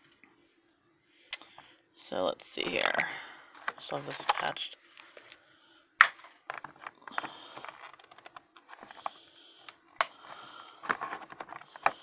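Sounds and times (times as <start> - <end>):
plastic container clicking and rattling: 6.0 - 9.2, 10.7 - 12.0
rustling: 6.1 - 9.3, 9.9 - 12.0.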